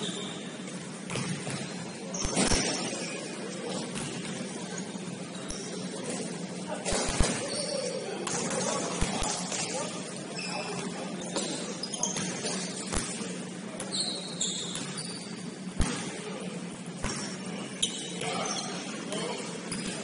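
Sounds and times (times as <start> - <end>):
sneakers squeaking on court: 0.0 - 6.1, 7.0 - 9.6, 10.2 - 16.1, 17.0 - 19.0
basketball bouncing: 1.1 - 2.8.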